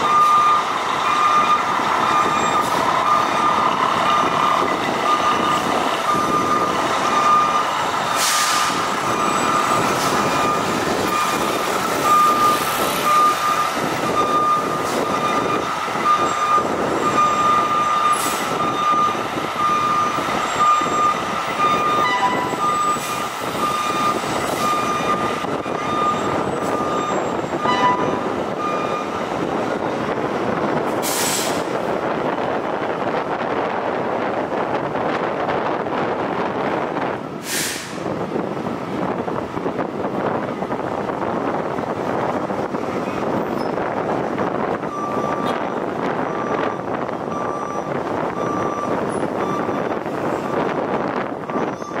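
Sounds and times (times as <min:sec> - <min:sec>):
electronic warning beep: 0:00.0 - 0:04.4, 0:09.1 - 0:29.2, 0:44.9 - 0:49.9
diesel engines running: 0:00.0 - 0:52.0
air hisses: 0:37.4 - 0:38.0.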